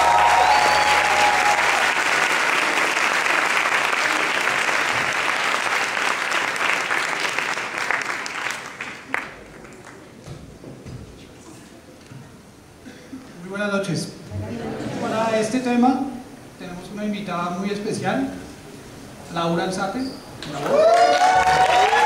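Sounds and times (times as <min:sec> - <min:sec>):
audience applauding: 0:00.0 - 0:10.2, 0:20.5 - 0:22.0.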